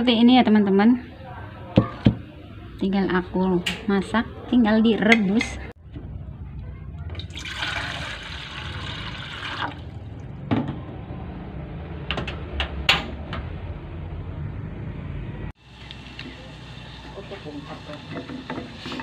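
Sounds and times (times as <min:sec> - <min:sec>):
water boiling in a pot: 0:07.3 - 0:10.2, 0:15.6 - 0:19.0.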